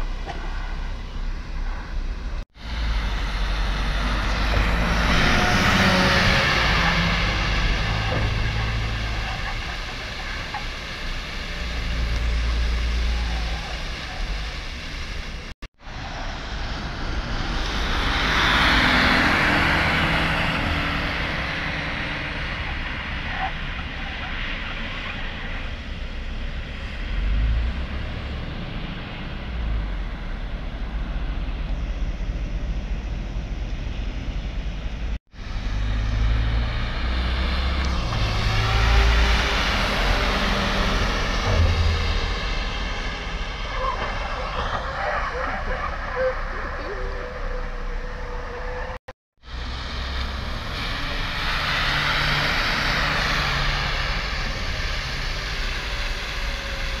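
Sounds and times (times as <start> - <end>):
bus engine noise: 0.0 - 57.0.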